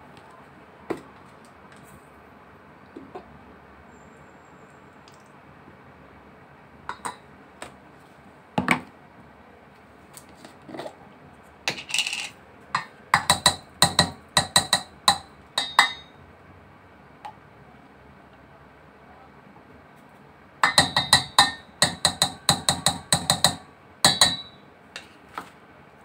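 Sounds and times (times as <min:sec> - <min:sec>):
metal spoon clinking in steel bowl: 0:11.7 - 0:16.1, 0:20.6 - 0:24.6.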